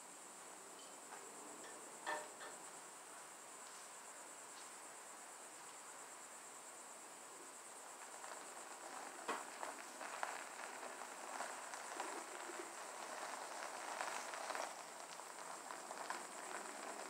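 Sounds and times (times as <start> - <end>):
high insect drone: 0.0 - 17.0
tyres crunching over gravel: 7.9 - 17.0.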